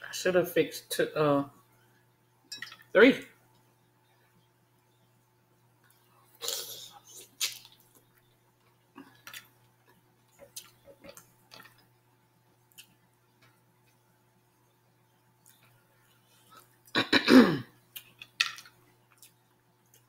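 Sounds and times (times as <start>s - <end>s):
soft chewing: 5.7s - 14.8s, 15.4s - 17.0s, 17.8s - 20.0s
wet smacking: 7.2s - 8.2s.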